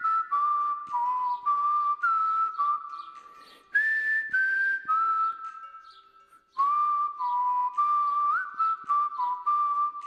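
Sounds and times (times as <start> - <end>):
whistled tune: 0.0 - 10.0.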